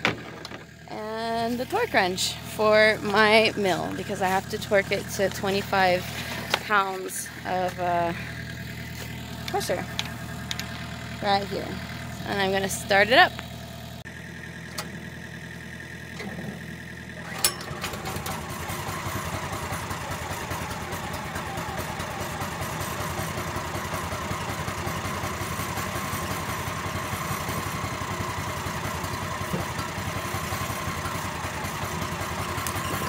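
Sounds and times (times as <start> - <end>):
small gasoline engine starting: 14.4 - 33.0.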